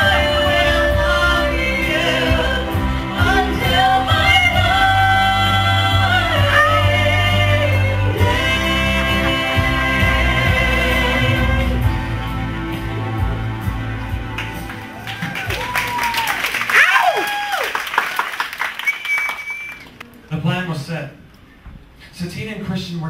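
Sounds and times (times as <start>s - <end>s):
band accompaniment with bass: 0.0s - 16.3s.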